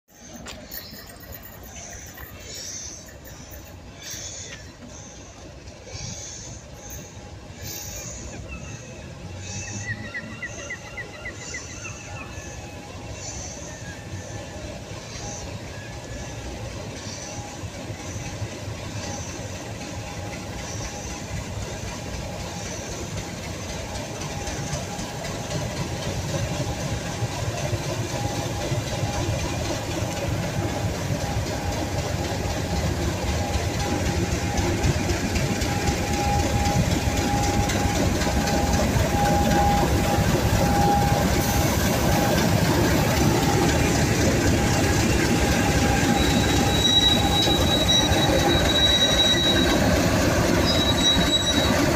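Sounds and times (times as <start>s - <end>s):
high wheel squeal: 0.1s - 18.3s, 23.6s - 51.9s
diesel locomotive engine: 0.1s - 51.9s
steady whine: 23.9s - 51.9s.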